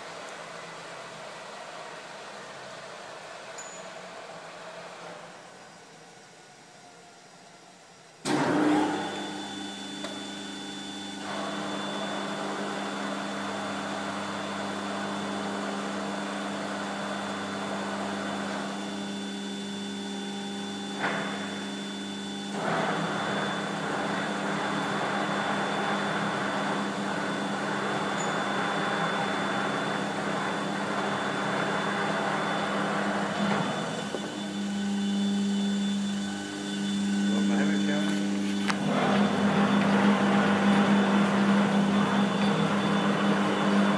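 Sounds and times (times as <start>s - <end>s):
lathe motor hum and whine: 0.0s - 43.9s.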